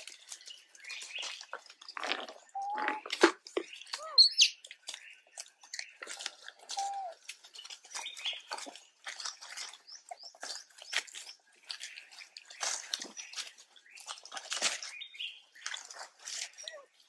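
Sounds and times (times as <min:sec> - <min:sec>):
dry leaves crackling and rustling: 0:00.0 - 0:17.0
monkey chirping calls: 0:03.9 - 0:04.6, 0:06.7 - 0:07.2.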